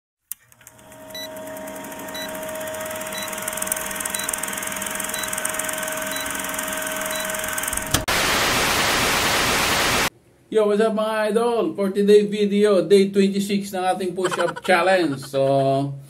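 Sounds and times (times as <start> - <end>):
film projector clattering: 0.4 - 8.0.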